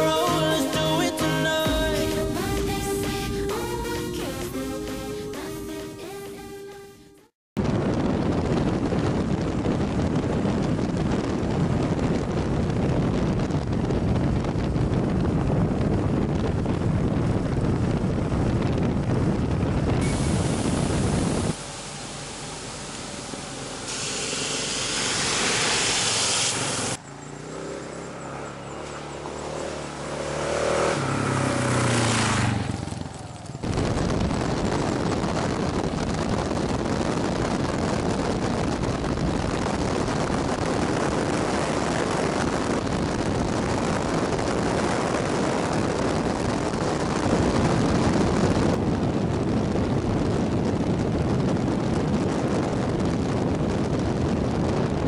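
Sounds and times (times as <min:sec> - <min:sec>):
wind rushing on microphone: 0:07.6 - 0:21.9, 0:29.0 - 0:55.0
motorcycle engine revving: 0:13.4 - 0:50.0
short rushing hiss: 0:20.0 - 0:27.0.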